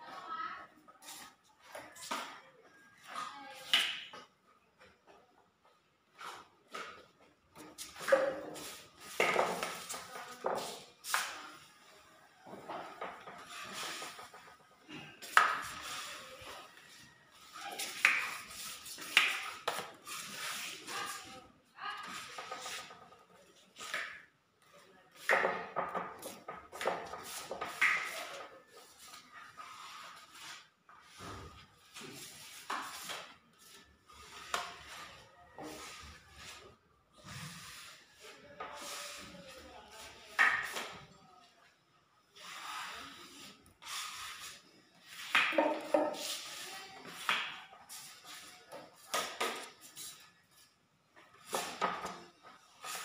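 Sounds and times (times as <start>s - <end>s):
plastering blade scraping wall: 12.9s - 16.7s, 25.2s - 39.5s, 42.4s - 50.2s.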